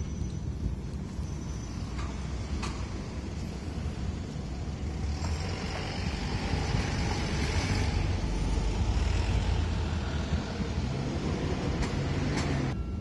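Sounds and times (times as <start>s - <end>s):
road traffic rumble: 0.0s - 13.0s
vehicle passing with tyre hiss: 1.5s - 12.8s.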